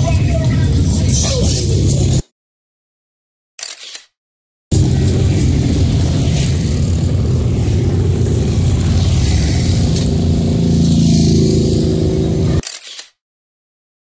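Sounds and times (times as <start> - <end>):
motorcycle engines running: 0.0 - 2.2, 4.7 - 12.6.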